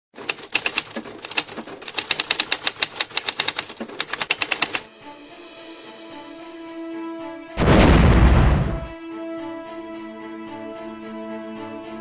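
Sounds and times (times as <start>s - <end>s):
typewriter keys clacking: 0.2s - 4.9s.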